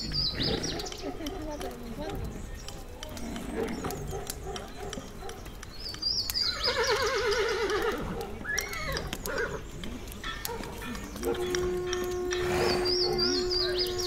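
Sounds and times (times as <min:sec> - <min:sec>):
birds chirping: 0:00.0 - 0:14.0
horse whinnying: 0:06.5 - 0:09.6, 0:11.5 - 0:13.5
steady horn note: 0:11.4 - 0:14.0.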